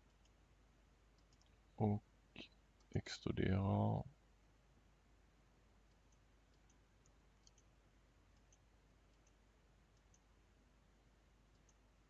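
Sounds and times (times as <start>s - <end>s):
faint computer mouse clicks: 1.1s - 1.6s, 5.9s - 7.7s, 8.3s - 10.3s, 11.5s - 11.8s.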